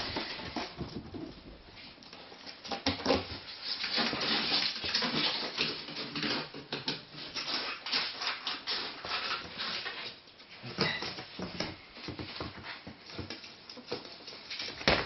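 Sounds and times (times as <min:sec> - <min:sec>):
ferrets scratching at cardboard box: 0:02.5 - 0:10.2.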